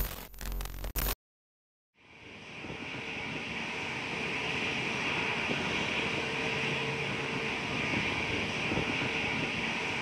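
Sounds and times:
jet engines running: 0:02.0 - 0:10.0.

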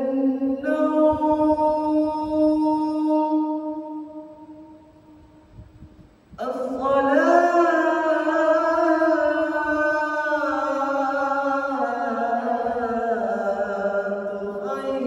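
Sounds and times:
man chanting call to prayer: 0:00.0 - 0:04.2, 0:06.4 - 0:15.0.

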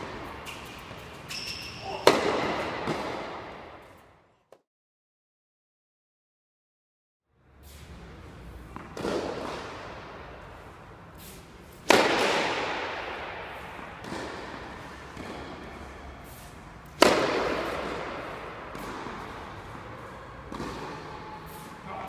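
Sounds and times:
tennis racket striking ball: 0:01.8 - 0:03.9, 0:08.7 - 0:10.3, 0:11.7 - 0:21.7
tennis ball bouncing: 0:02.0 - 0:03.9, 0:08.6 - 0:10.4, 0:11.7 - 0:21.7.

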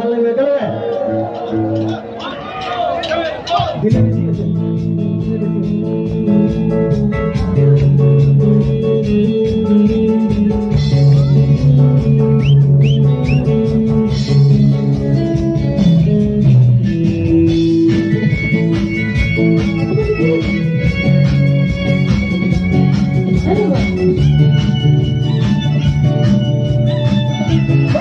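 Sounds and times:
guitar: 0:00.0 - 0:28.0
bass guitar: 0:00.7 - 0:28.0
steady drum beat: 0:00.8 - 0:28.0.

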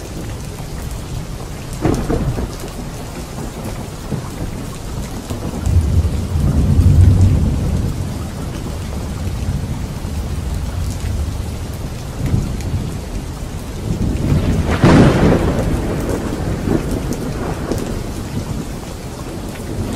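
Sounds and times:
steady rain falling: 0:00.0 - 0:19.9
sharp thunderclap: 0:01.8 - 0:08.2, 0:13.8 - 0:18.7
rolling thunder: 0:01.8 - 0:19.9.

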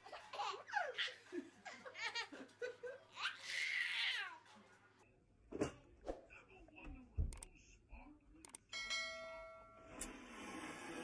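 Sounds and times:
baby laughing: 0:00.0 - 0:04.3.

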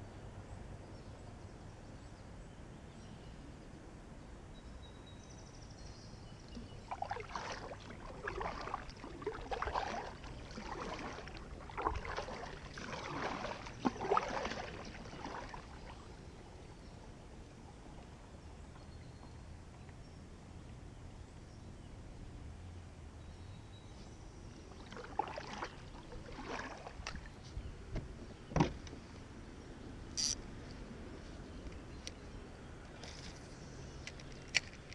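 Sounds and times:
faint outdoor background: 0:00.0 - 0:34.9
kayak paddle splashing water: 0:06.5 - 0:16.6, 0:24.7 - 0:27.4.

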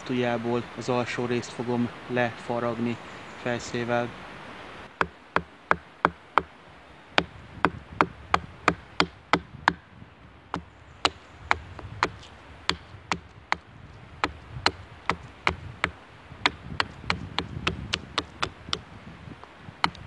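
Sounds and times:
hatchet chopping wood: 0:04.9 - 0:06.5, 0:07.2 - 0:09.8, 0:10.5 - 0:18.9, 0:19.8 - 0:20.0.

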